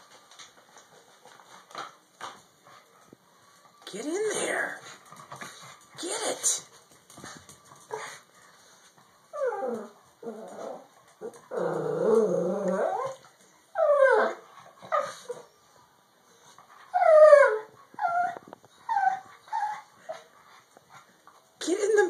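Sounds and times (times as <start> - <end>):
puppy whining and yipping: 9.3 - 15.7, 16.7 - 20.3.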